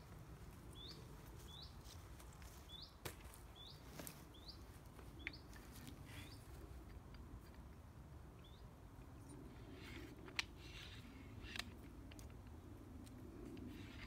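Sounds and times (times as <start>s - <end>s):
small bird chirping: 0.8s - 1.8s.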